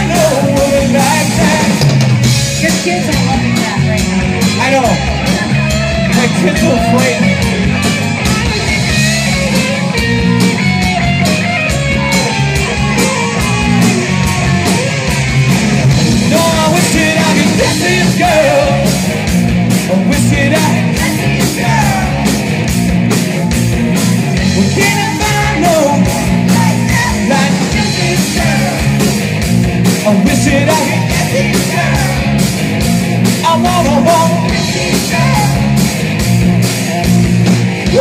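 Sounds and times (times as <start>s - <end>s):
person singing: 0.0s - 1.9s, 16.2s - 19.1s, 19.8s - 22.4s, 24.4s - 29.0s, 33.4s - 35.8s
live rock band playing: 0.0s - 38.0s.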